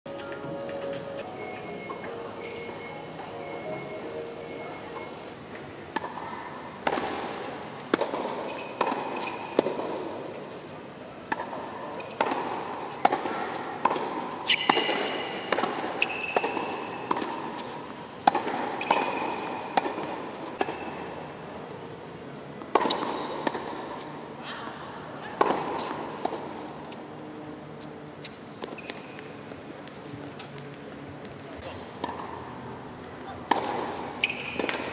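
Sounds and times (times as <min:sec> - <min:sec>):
tennis balls bouncing on court: 0:05.9 - 0:10.6, 0:11.2 - 0:21.4, 0:22.6 - 0:24.3, 0:25.3 - 0:27.0, 0:28.2 - 0:34.9
tennis balls struck by rackets: 0:05.9 - 0:10.6, 0:11.2 - 0:21.4, 0:22.6 - 0:24.3, 0:25.4 - 0:27.0, 0:31.8 - 0:32.8, 0:33.4 - 0:34.9
shoes squeaking on court: 0:06.0 - 0:09.6, 0:11.9 - 0:13.0, 0:14.4 - 0:21.1, 0:28.2 - 0:31.0, 0:33.9 - 0:34.9.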